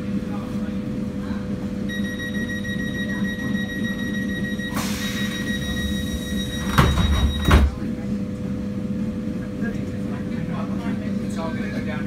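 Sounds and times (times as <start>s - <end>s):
train electrical hum: 0.0s - 12.0s
high-pitched door warning tone: 1.9s - 7.8s
train doors hissing: 4.7s - 7.7s.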